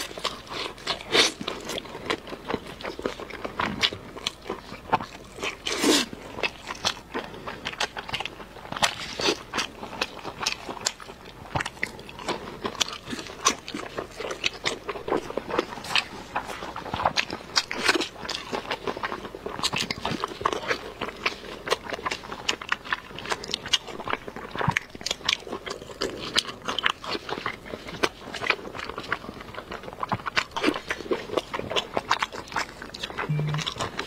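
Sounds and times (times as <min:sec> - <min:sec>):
person biting and chewing: 0:00.0 - 0:34.0
sharp mouth clicks: 0:33.2 - 0:33.8.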